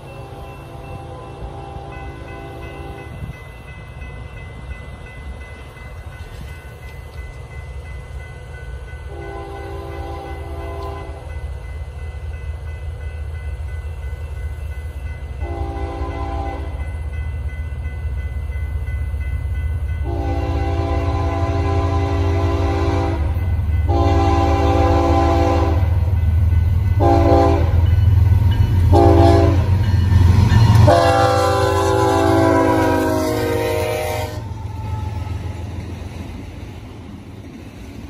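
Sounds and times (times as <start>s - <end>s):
low locomotive rumble: 0.0s - 38.0s
locomotive air horn blasts: 0.2s - 3.2s, 9.1s - 11.3s, 15.4s - 16.8s, 20.0s - 26.0s, 27.0s - 27.8s, 28.9s - 29.7s, 30.7s - 35.4s.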